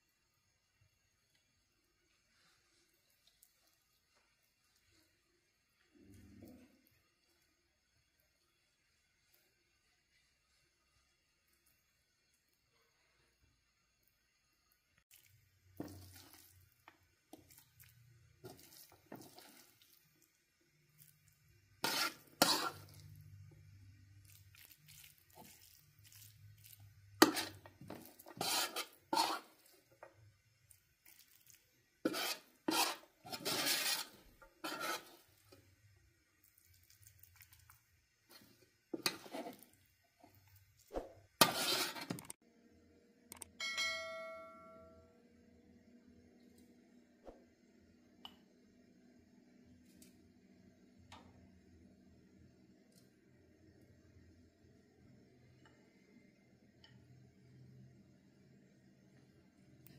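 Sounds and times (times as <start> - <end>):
metal spoon scraping a pot: 21.8 - 23.1, 27.2 - 29.7, 32.0 - 35.6, 38.9 - 39.8, 41.4 - 42.4.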